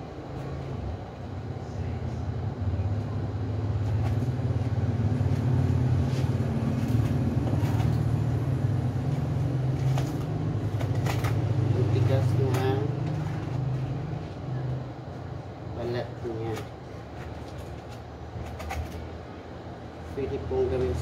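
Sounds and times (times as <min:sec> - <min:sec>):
low motor hum: 0:00.0 - 0:15.8.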